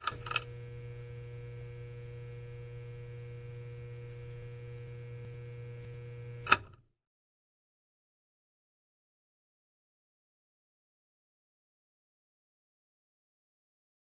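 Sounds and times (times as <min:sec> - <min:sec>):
neon sign electrical buzz: 0:00.0 - 0:06.7.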